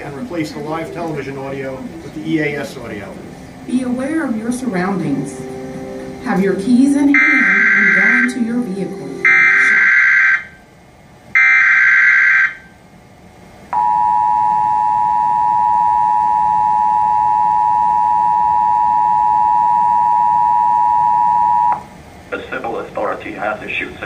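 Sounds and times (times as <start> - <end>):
two-tone attention signal: 3.8 - 10.5, 13.8 - 21.9
data bursts: 6.2 - 10.5.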